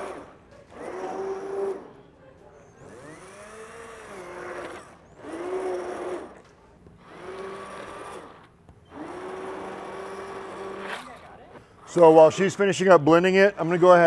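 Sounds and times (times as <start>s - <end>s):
immersion blender motor: 0.0s - 2.0s, 2.8s - 12.0s.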